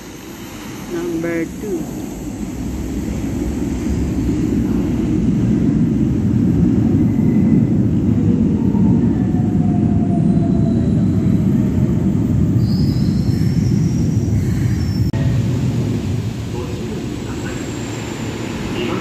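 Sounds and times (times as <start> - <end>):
train rumble: 0.0 - 19.0
faint whine: 15.1 - 19.0.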